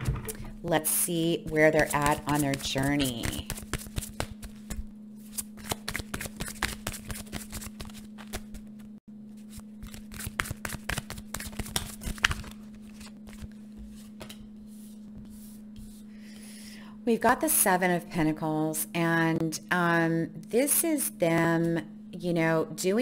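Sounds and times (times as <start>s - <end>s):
cards being shuffled: 1.8s - 14.4s.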